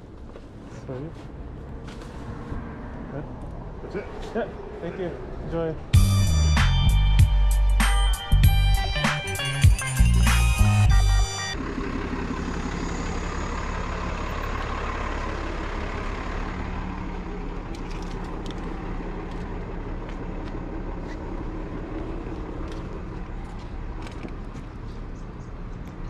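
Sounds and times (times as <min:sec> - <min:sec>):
passing cars rumbling: 0:00.0 - 0:07.2, 0:11.5 - 0:26.0
large vehicle passing: 0:01.3 - 0:06.3, 0:11.5 - 0:26.0.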